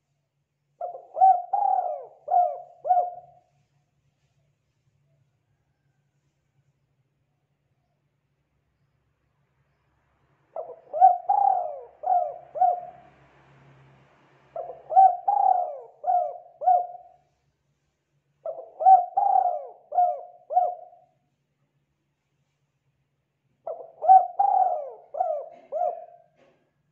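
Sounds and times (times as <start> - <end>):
dove cooing: 0.8 - 3.5, 10.6 - 13.1, 14.6 - 17.2, 18.4 - 21.1, 23.7 - 26.6.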